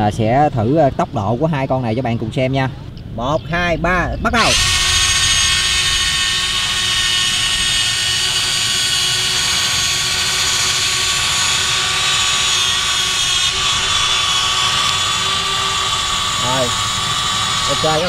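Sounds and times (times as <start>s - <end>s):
toy excavator motors whining: 4.4s - 18.0s.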